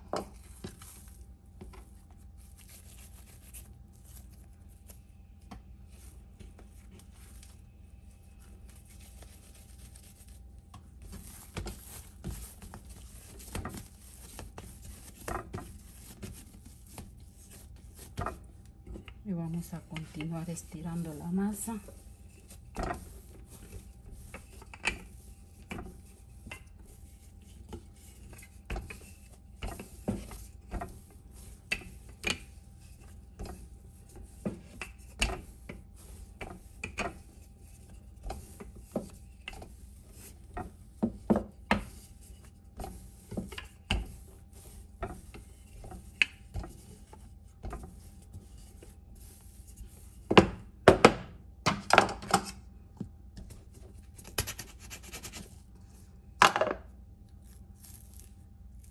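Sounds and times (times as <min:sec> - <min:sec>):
rolling pin knocking and rubbing: 0:08.8 - 0:19.2, 0:19.9 - 0:52.4.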